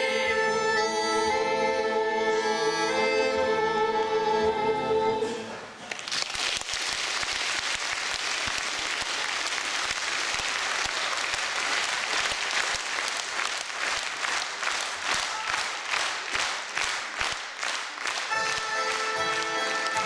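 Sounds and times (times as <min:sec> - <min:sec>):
audience applauding: 0:05.8 - 0:20.0
rhythmic unison clapping: 0:05.8 - 0:20.0.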